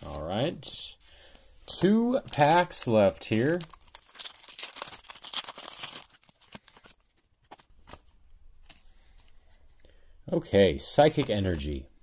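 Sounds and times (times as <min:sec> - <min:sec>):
foil wrapper tearing and crinkling: 0:02.3 - 0:07.2.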